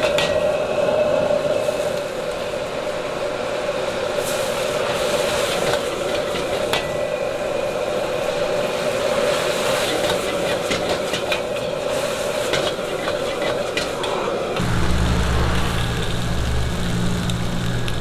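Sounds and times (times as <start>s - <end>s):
gas burner rushing: 14.2s - 18.0s
food sizzling in a wok: 14.6s - 18.0s.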